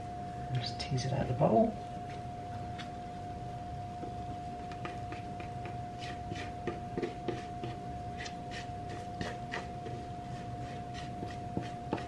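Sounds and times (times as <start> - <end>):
steady hum: 0.0 - 12.0
fingers scraping dough in a bowl: 4.6 - 12.0.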